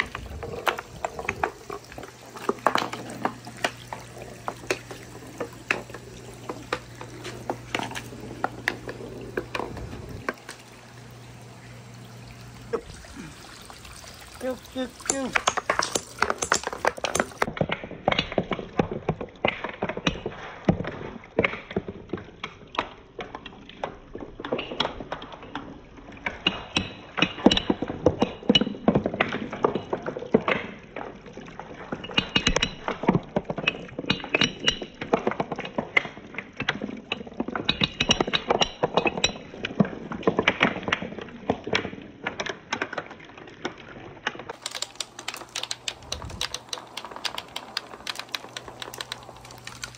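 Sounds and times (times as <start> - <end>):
marbles clattering down wooden run: 0.0 - 10.6, 14.4 - 30.9, 43.6 - 49.9.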